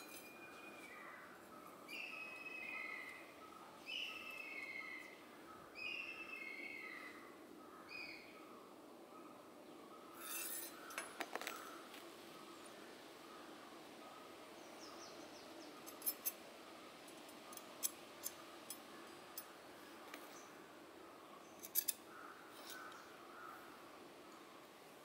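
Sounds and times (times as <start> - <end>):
metal tongs clicking: 21.6 - 22.0.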